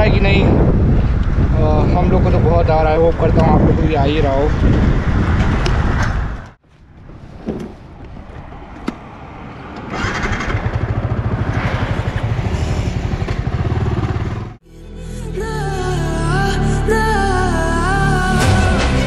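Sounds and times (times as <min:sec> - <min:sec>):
motorcycle engine running: 0:09.9 - 0:14.6.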